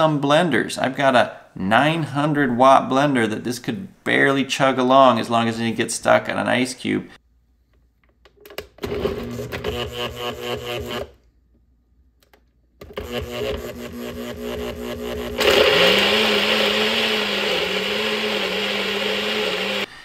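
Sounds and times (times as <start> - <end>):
blender motor chopping fruit: 8.9 - 11.2, 12.8 - 19.9.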